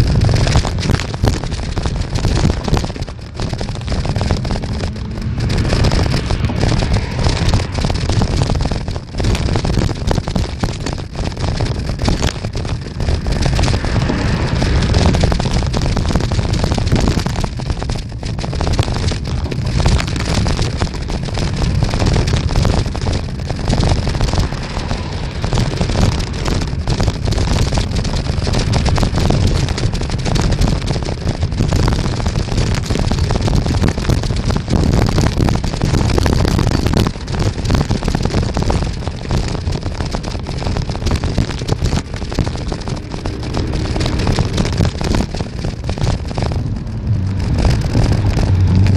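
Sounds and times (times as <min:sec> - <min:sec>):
wind buffeting microphone: 0:00.0 - 0:48.9.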